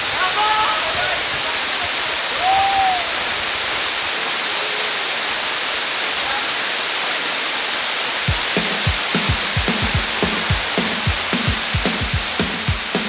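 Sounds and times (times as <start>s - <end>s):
waterfall rushing: 0.0s - 13.0s
bass drum music beats: 8.3s - 13.0s.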